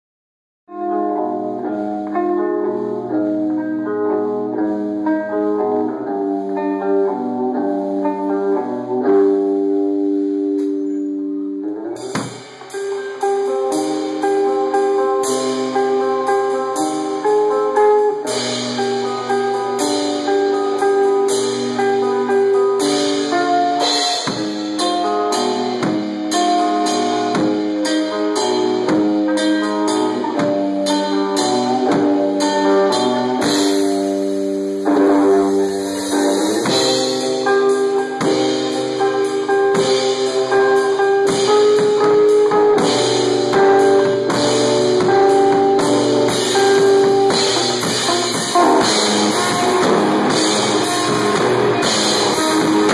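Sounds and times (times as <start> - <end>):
electric guitar long notes: 11.2 - 52.9
drum hits and cymbals: 12.0 - 52.9.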